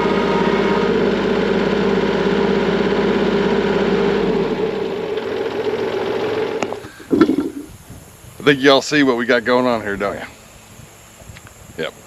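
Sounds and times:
tractor diesel engine running: 0.0s - 7.7s.

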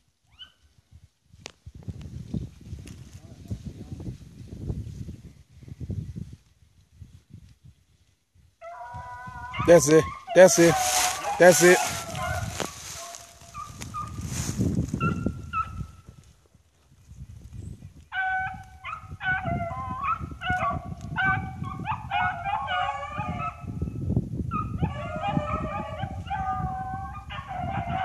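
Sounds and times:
dog yelps: 8.6s - 14.2s, 15.0s - 15.8s, 18.1s - 23.7s, 24.5s - 28.0s
dogs baying: 8.6s - 14.2s, 18.2s - 23.6s, 24.5s - 28.0s.

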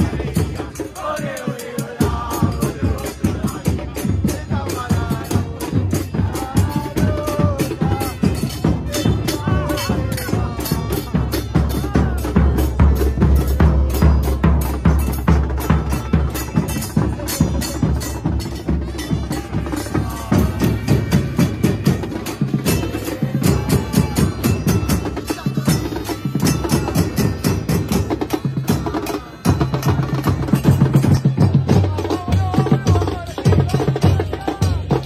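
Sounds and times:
bass drums beating fast: 0.0s - 35.0s
crowd voices: 0.0s - 35.0s.

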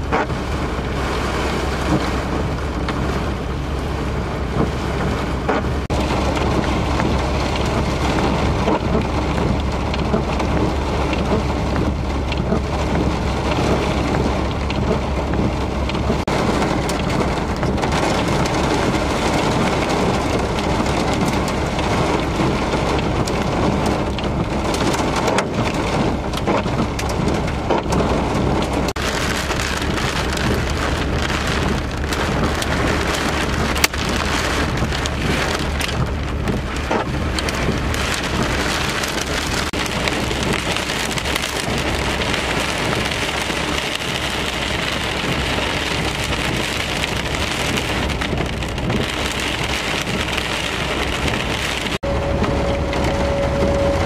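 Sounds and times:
heavy rain on a vehicle: 0.0s - 54.0s
steady tone: 52.0s - 54.0s.

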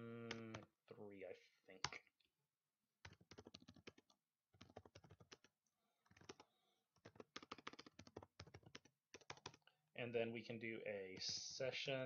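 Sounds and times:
faint keyboard typing: 3.0s - 9.7s, 11.0s - 11.5s.

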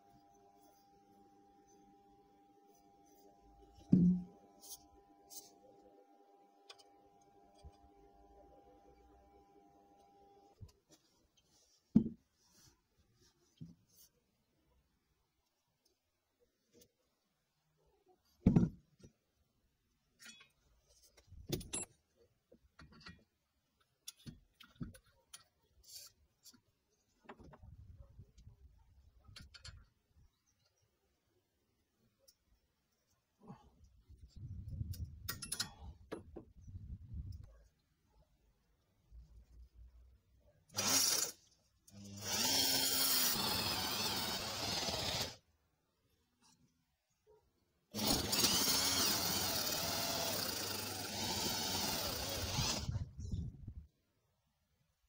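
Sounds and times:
electric drill boring into soil: 40.8s - 45.4s, 47.9s - 53.0s.

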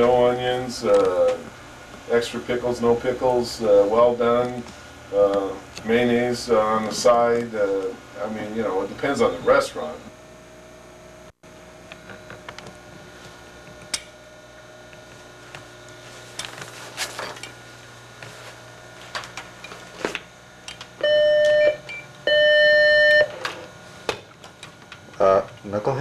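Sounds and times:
long electronic beeps: 21.0s - 23.4s.

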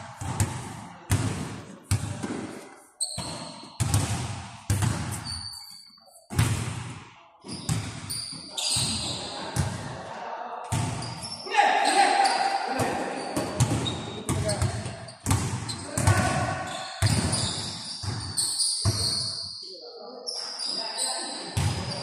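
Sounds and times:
basketball bouncing on gym floor: 0.2s - 2.5s, 3.1s - 5.4s, 6.3s - 7.1s, 12.8s - 19.2s, 21.6s - 22.0s
sneaker squeaks: 2.8s - 6.4s, 7.4s - 9.5s, 10.7s - 22.0s.

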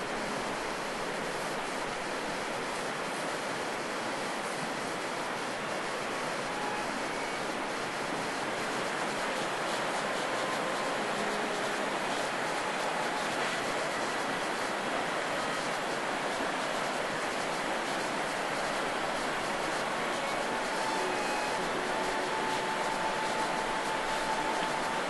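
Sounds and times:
fast-flowing river rushing: 0.0s - 25.0s.

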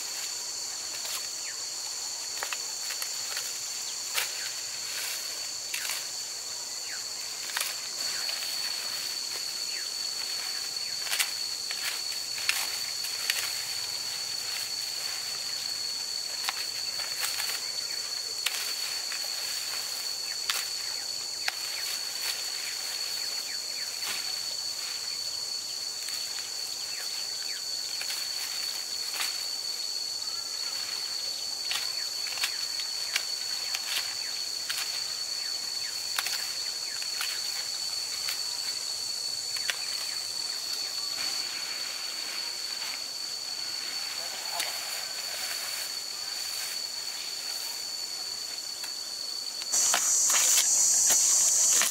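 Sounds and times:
dry corn leaves rustling: 0.0s - 29.6s, 30.2s - 51.9s
corn ears snapping off: 49.7s - 51.9s.

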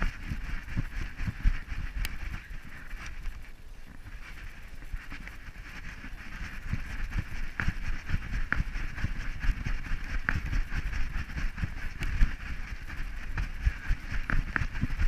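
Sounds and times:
low thumps of dog steps: 0.0s - 15.0s
steady rushing hiss: 0.0s - 15.0s
camera bumping and rattling: 5.0s - 15.0s.

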